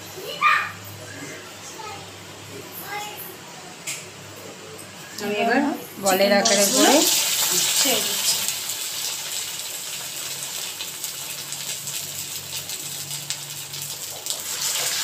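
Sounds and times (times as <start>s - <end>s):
food deep-frying in oil: 6.1s - 15.0s.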